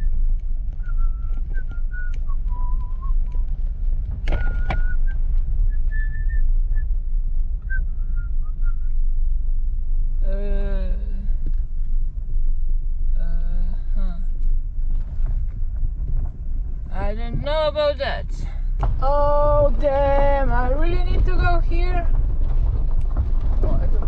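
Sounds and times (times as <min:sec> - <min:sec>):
car interior rumble: 0:00.0 - 0:24.0
person whistling a tune: 0:00.8 - 0:03.4, 0:04.4 - 0:05.2, 0:05.9 - 0:06.8.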